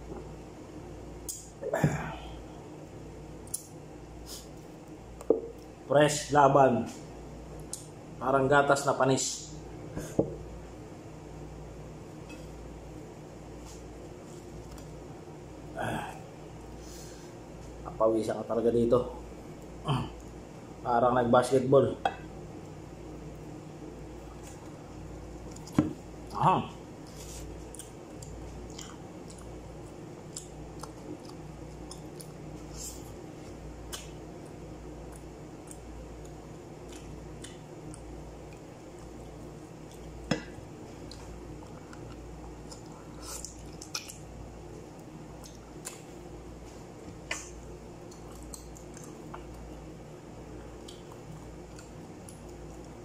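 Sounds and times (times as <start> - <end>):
steady low hum: 0.0 - 53.0
man chewing wet mouth sounds: 27.0 - 53.0.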